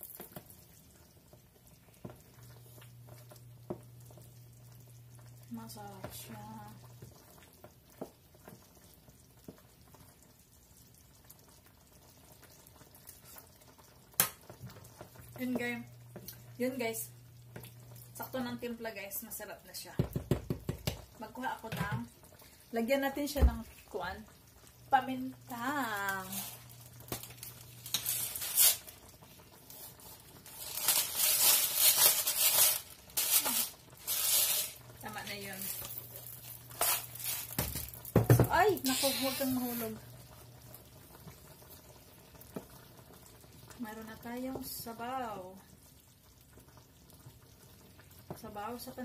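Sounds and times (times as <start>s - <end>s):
soup simmering in a pan: 0.0s - 49.0s
wooden spoon tapping a pan: 19.9s - 21.1s.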